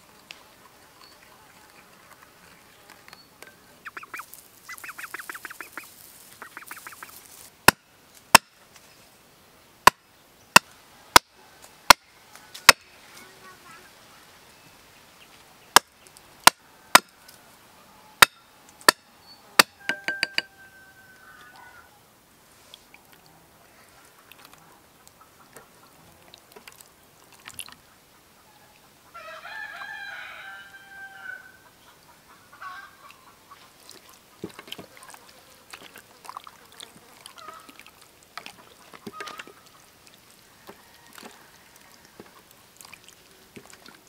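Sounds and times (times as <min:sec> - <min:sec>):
bird calling in pulsed bursts: 0:03.8 - 0:07.2
axe chopping wood: 0:07.6 - 0:08.6, 0:09.8 - 0:10.0, 0:10.6 - 0:11.3, 0:15.8 - 0:17.1, 0:19.6 - 0:20.5.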